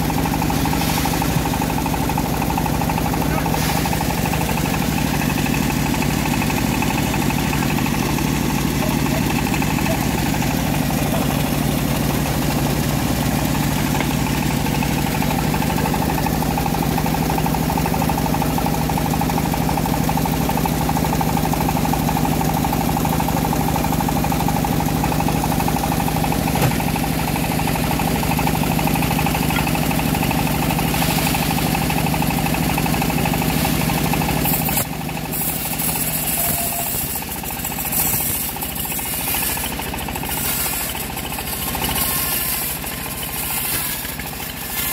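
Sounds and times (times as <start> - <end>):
engine running under load: 0.0 - 44.9
band blade sawing log: 28.4 - 44.9.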